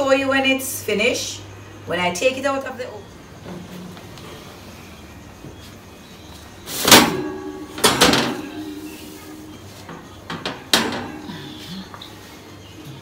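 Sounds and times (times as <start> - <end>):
loud metallic clanks: 6.8 - 9.5, 10.2 - 11.6.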